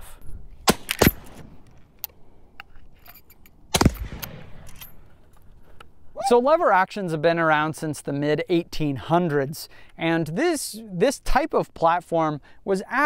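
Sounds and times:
rifle shot with echo: 3.7s - 5.0s.

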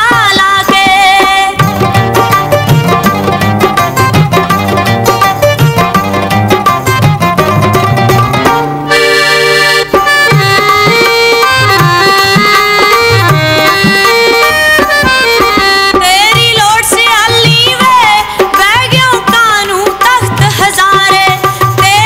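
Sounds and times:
hand drum beats: 0.0s - 22.0s
plucked string notes: 1.6s - 16.0s
reed instrument melody: 1.7s - 16.1s.

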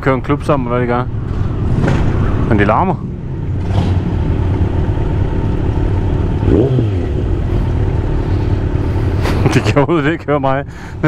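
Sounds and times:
motorcycles engines going past: 1.1s - 9.8s.

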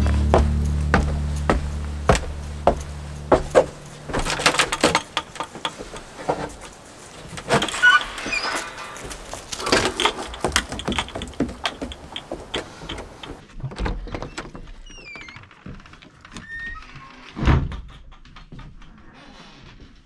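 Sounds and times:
heavy door thump: 0.3s - 6.4s
wooden door clicks and knocks: 2.1s - 6.4s, 7.3s - 15.4s.

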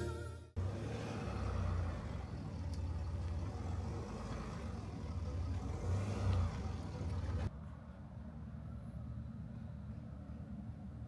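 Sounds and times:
car engine rumbling: 0.6s - 7.6s.

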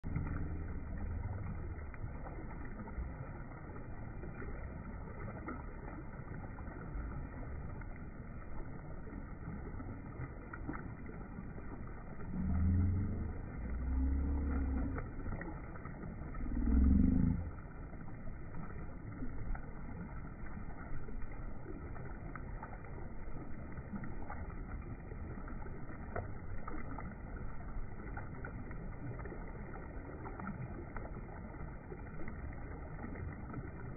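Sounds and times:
low muffled water rumble: 0.0s - 33.9s
deep drawn-out swells: 12.1s - 15.6s.

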